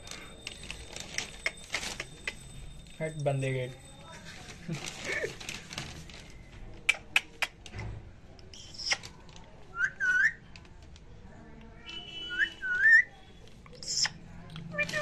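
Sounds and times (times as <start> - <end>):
swooping whistling: 12.2 - 13.1.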